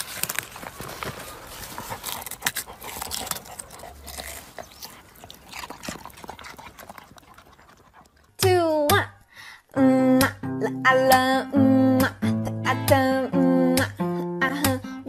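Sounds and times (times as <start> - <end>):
dog rustling in leaves and soil: 0.0 - 7.1.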